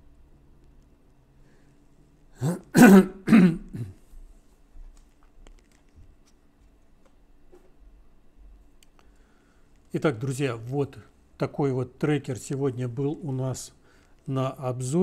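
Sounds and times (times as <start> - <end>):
man clearing his throat: 2.4 - 4.0.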